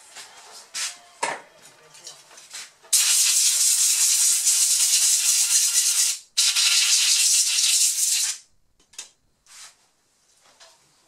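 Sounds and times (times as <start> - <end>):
compressed air hissing: 2.9 - 8.4.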